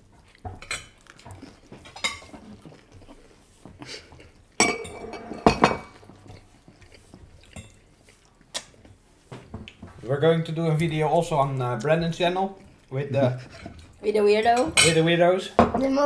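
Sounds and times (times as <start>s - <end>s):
cutlery clinking on plates: 4.1s - 6.1s, 14.6s - 15.0s.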